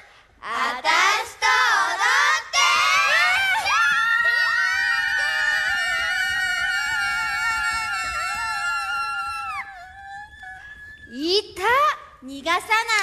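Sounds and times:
women shrieking and screaming: 3.0 - 11.1.

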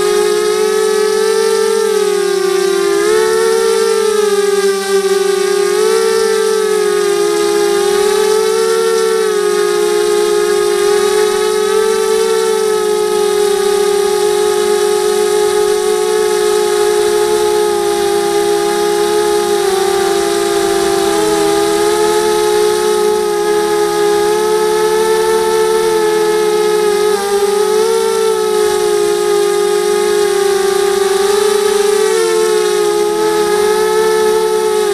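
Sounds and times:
drone motors whining: 0.0 - 34.9.

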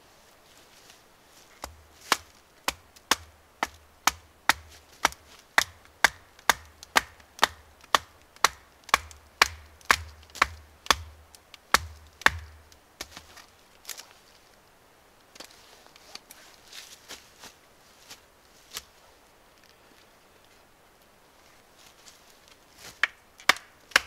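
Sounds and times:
baton striking knife into wood: 1.6 - 13.2.

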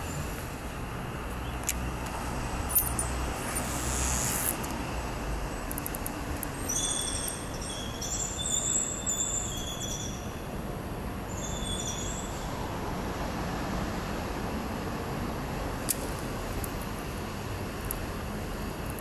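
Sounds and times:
low rumble of city noise: 0.0 - 19.0
high-pitched squeal: 2.7 - 4.7.

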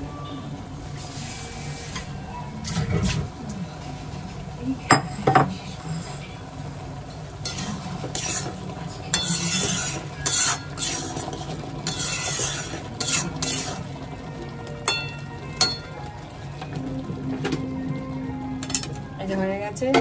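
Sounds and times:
food sizzling: 0.6 - 19.9
spoon scraping a cooking pan: 7.4 - 13.8
spoon clinking against pan: 9.1 - 10.6, 14.8 - 15.9.

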